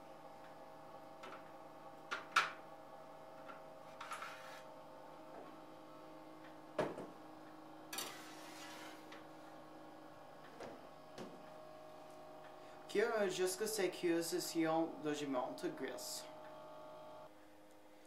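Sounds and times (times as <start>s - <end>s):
steady faint hum: 0.0s - 18.0s
tray scraping: 7.9s - 9.2s.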